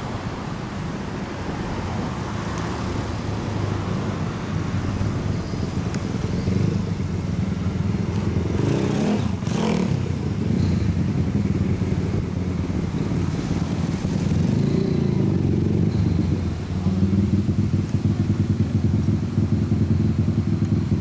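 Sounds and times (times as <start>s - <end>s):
motorcycle engine idling: 14.5s - 21.0s.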